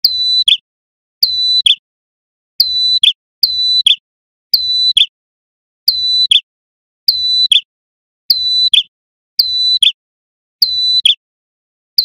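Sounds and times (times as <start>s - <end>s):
bird whistled calls: 0.0s - 0.6s, 1.2s - 1.8s, 2.6s - 4.0s, 4.6s - 5.2s, 5.9s - 6.5s, 7.1s - 7.7s, 8.3s - 10.0s, 10.6s - 11.2s.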